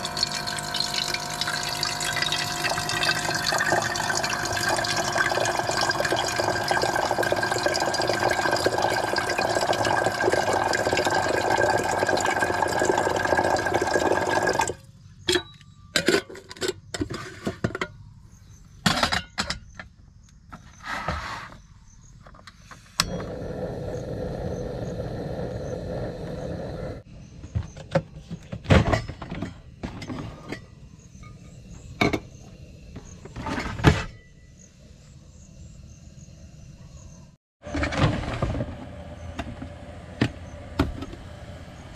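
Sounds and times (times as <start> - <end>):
tap water running into kettle: 0.0 - 14.8
kettle clinks and knocks: 28.8 - 32.3.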